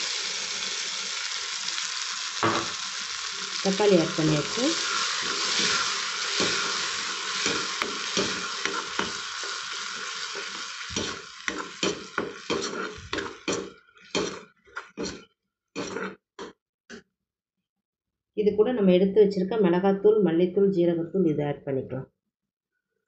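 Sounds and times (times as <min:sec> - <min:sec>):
food sizzling in a pan: 0:00.0 - 0:16.5
spatula scraping a pan: 0:04.2 - 0:16.5.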